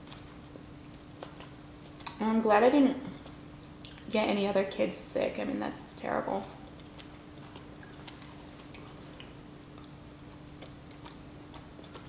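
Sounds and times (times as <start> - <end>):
person chewing: 0.0 - 2.2, 6.6 - 12.0
low steady hum: 0.0 - 12.0.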